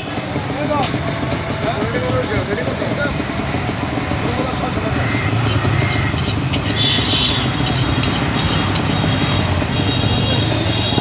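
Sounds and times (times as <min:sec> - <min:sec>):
engine running: 0:00.0 - 0:09.7
traffic din: 0:00.0 - 0:11.0
sharp scrapes and clicks: 0:05.4 - 0:09.5.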